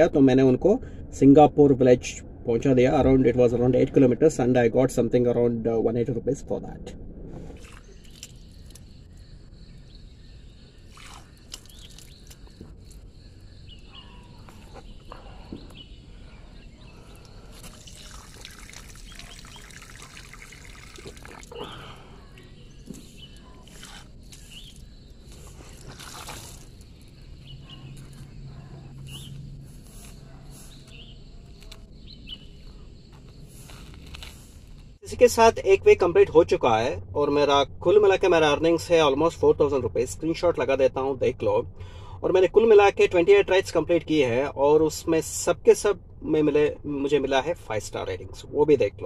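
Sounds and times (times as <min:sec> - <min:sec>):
steady low rumble: 0:00.0 - 0:10.8, 0:26.6 - 0:42.3
footsteps on pavement: 0:27.4 - 0:28.4.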